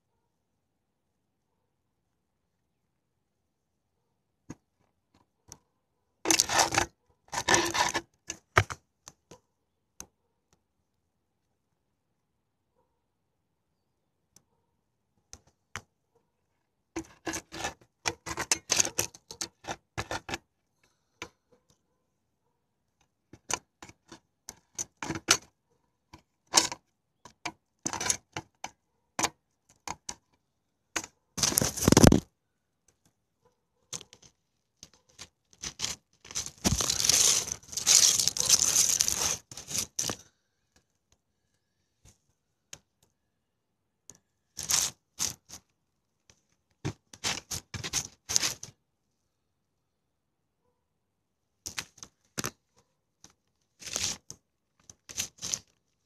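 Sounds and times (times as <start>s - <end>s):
rustling: 31.0s - 32.3s, 33.9s - 40.4s, 44.6s - 45.7s, 46.9s - 48.7s.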